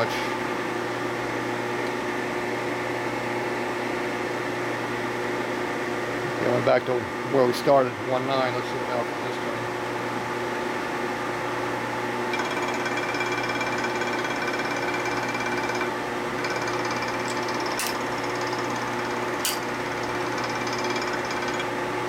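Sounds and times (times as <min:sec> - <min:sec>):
milling machine spindle running: 0:12.3 - 0:21.8.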